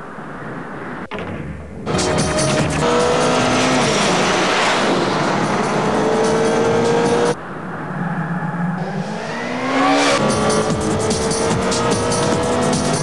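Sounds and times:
engine note climbing: 0:01.1 - 0:07.4, 0:08.1 - 0:13.0
music: 0:01.1 - 0:07.4, 0:10.2 - 0:13.0
motorcycle engine running hard: 0:10.0 - 0:13.0.

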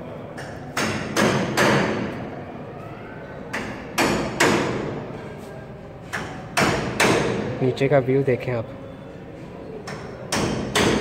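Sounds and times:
hammer blows echoing: 0:00.3 - 0:02.4, 0:03.4 - 0:05.2, 0:06.1 - 0:07.6, 0:09.8 - 0:11.0.

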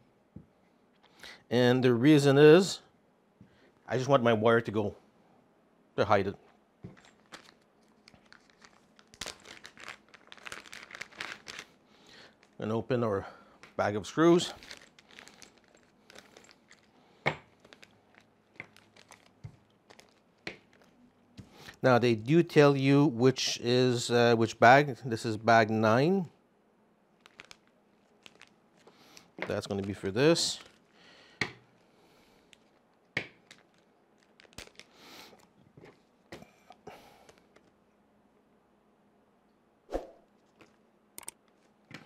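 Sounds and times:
plastic bag crinkling: 0:06.9 - 0:12.8, 0:14.0 - 0:21.8, 0:27.2 - 0:36.2.

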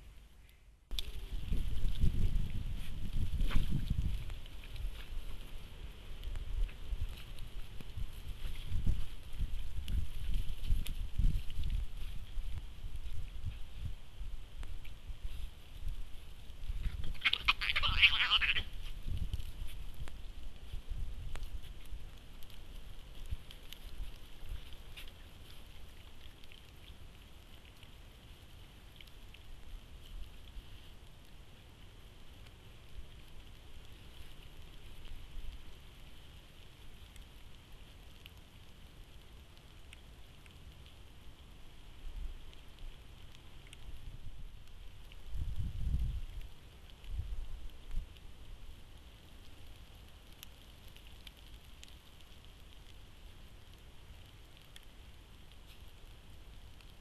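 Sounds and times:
faint outdoor background hiss: 0:00.0 - 0:57.0
light rain pattering: 0:00.0 - 0:57.0
light ticks: 0:14.5 - 0:17.6, 0:18.4 - 0:48.3, 0:49.0 - 0:57.0.

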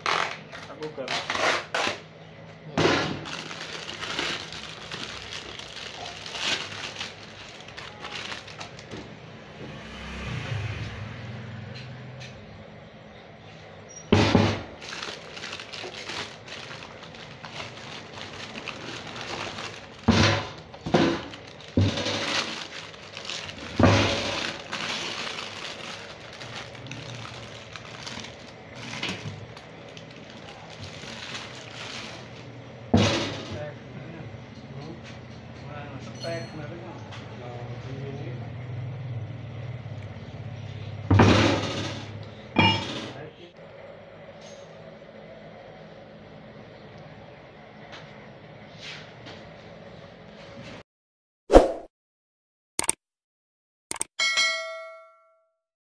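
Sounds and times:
paper wrapping crinkling: 0:03.2 - 0:08.9, 0:14.8 - 0:32.5
knocks and clatters of gears: 0:41.0 - 0:43.2.

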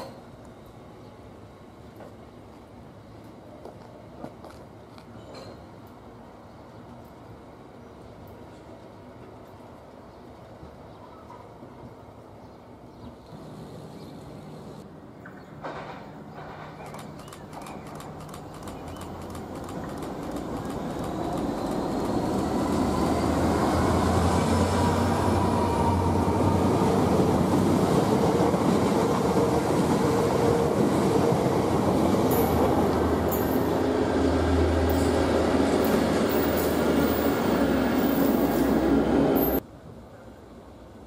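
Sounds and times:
train wheels rumbling on rail: 0:13.2 - 0:39.6.

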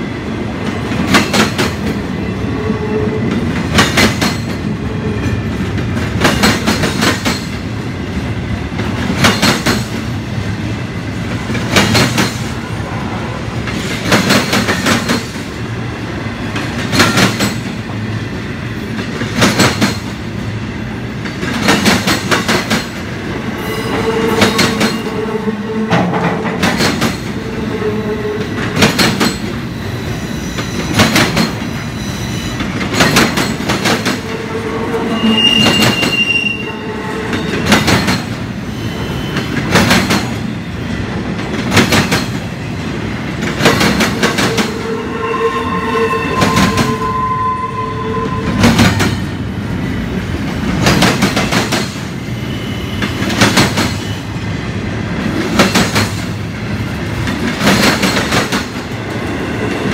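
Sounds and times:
train rumble: 0:00.0 - 0:59.9
train wheels clacking over rail joints: 0:00.7 - 0:02.0, 0:03.4 - 0:04.7, 0:05.6 - 0:07.7, 0:08.8 - 0:10.1, 0:11.3 - 0:12.5, 0:13.7 - 0:15.5, 0:16.6 - 0:17.8, 0:18.9 - 0:20.2, 0:21.2 - 0:23.1, 0:25.9 - 0:27.4, 0:28.6 - 0:29.6, 0:30.6 - 0:31.8, 0:32.5 - 0:34.4, 0:37.3 - 0:38.5, 0:39.4 - 0:40.5, 0:41.4 - 0:42.5, 0:50.5 - 0:52.1, 0:53.0 - 0:54.2, 0:55.4 - 0:56.4, 0:57.1 - 0:59.0
metal squeal: 0:23.6 - 0:28.5, 0:34.0 - 0:37.9, 0:44.1 - 0:49.3.

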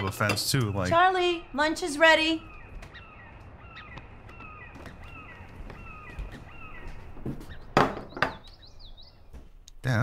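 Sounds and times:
birds calling: 0:00.0 - 0:10.0
loud sharp knocks: 0:07.2 - 0:08.4.

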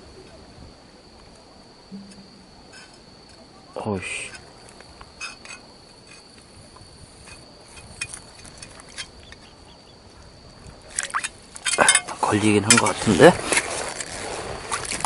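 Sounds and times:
high-pitched whine: 0:01.9 - 0:02.9
small water sounds: 0:04.3 - 0:15.0.

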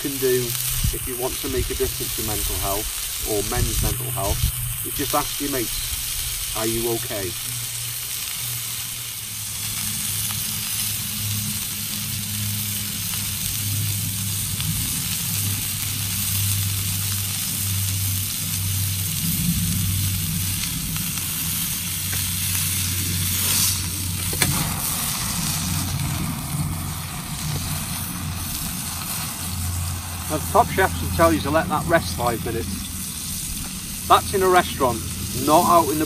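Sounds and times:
steak sizzling in a pan: 0:00.0 - 0:36.0
low steady hum: 0:13.7 - 0:36.0.

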